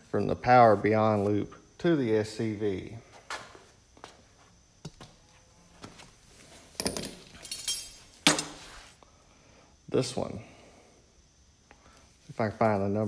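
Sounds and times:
wrenches clinking on concrete floor: 0:06.8 - 0:08.6.

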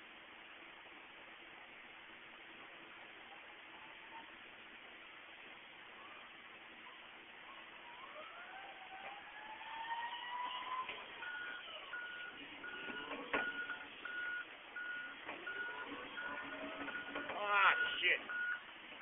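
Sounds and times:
reversing alarm beeping: 0:09.9 - 0:18.7.

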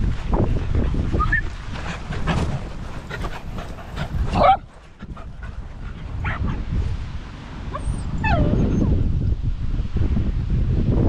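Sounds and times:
small dogs yipping: 0:07.7 - 0:09.1
dog whining: 0:07.8 - 0:09.0.

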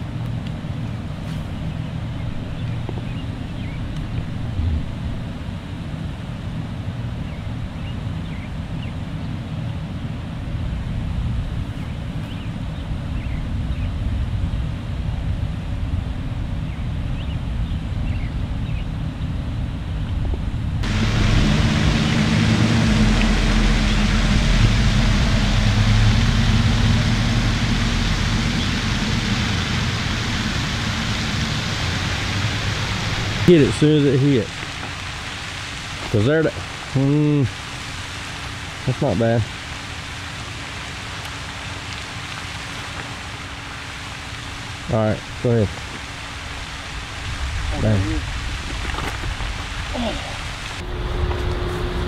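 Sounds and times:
low mechanical drone: 0:00.0 - 0:52.0
wind rumbling on microphone: 0:00.0 - 0:52.0
broad hiss: 0:20.8 - 0:52.0.

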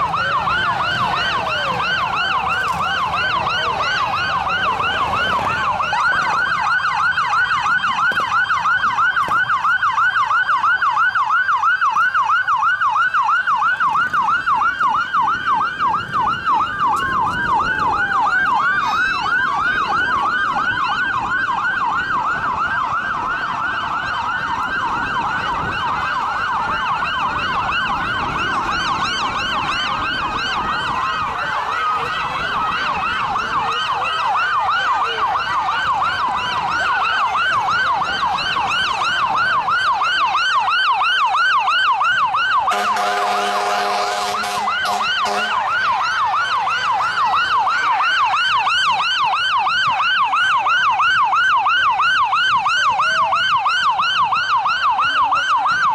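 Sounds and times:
siren yelping: 0:00.0 - 0:55.9
horn blast: 0:42.7 - 0:45.7.

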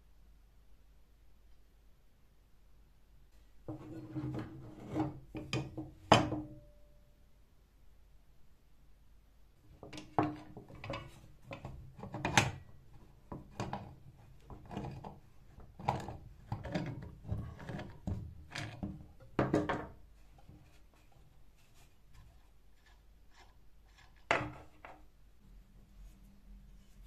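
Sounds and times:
tool knocks and scrapes on wooden table: 0:03.7 - 0:06.6.

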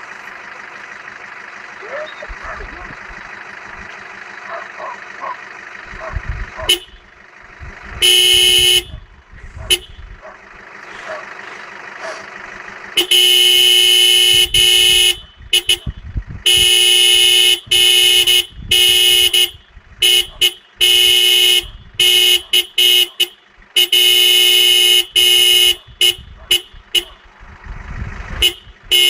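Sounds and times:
car horn blasts: 0:06.6 - 0:07.2, 0:07.8 - 0:10.2, 0:12.9 - 0:27.2, 0:28.4 - 0:29.0.

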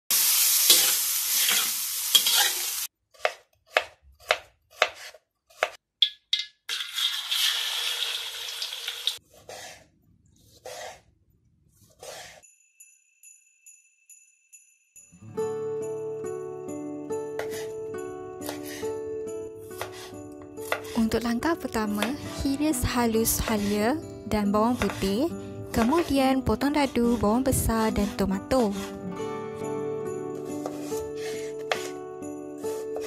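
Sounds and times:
oil sizzling: 0:00.1 - 0:02.9, 0:06.0 - 0:09.2
spatula scraping a steel wok: 0:00.7 - 0:03.3, 0:06.7 - 0:08.3, 0:09.1 - 0:11.1, 0:11.8 - 0:12.4, 0:17.4 - 0:17.8, 0:18.4 - 0:18.9, 0:23.0 - 0:24.0, 0:25.8 - 0:29.0, 0:30.5 - 0:32.0
faint jingle-bell tinkle: 0:12.4 - 0:15.5.

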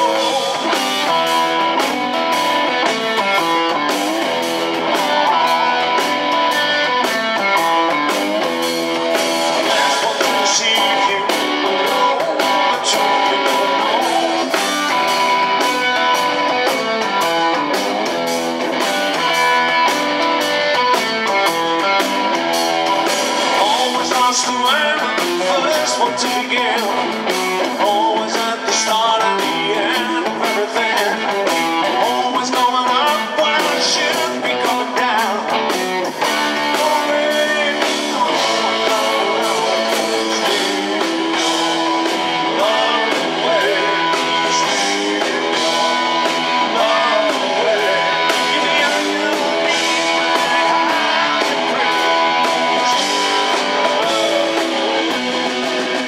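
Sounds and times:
blues-rock band playing: 0:00.0 - 0:56.0
electric guitar lead lines: 0:00.0 - 0:56.0.

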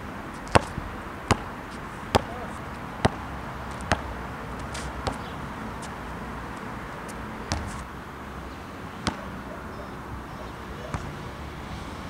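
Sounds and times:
basketball bouncing on asphalt: 0:00.3 - 0:07.9, 0:09.0 - 0:09.4.

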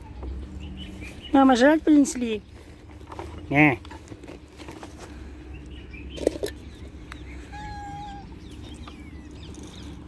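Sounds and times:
cats meowing: 0:07.2 - 0:09.5.

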